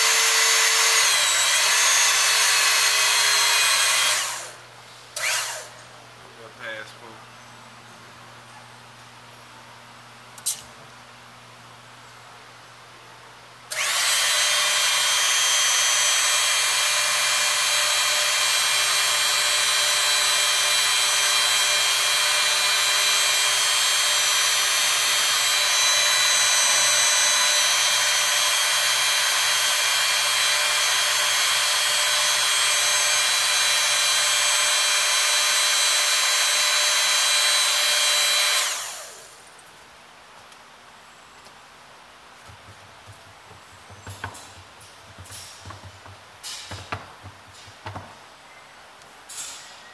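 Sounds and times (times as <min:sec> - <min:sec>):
hydraulic pump whirring: 0:00.0 - 0:05.9, 0:13.7 - 0:39.4, 0:42.5 - 0:48.3.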